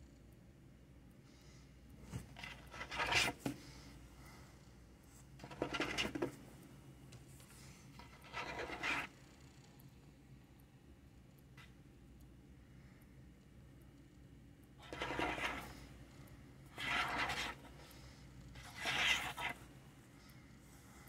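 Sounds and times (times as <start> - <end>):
scratching on fabric: 8.0 - 9.1, 14.8 - 15.9, 16.7 - 17.9, 18.6 - 19.7.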